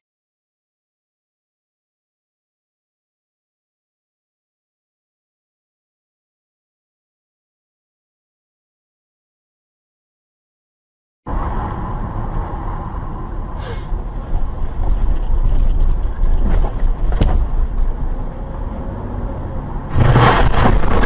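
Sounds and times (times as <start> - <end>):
road and engine rumble: 11.3 - 21.0.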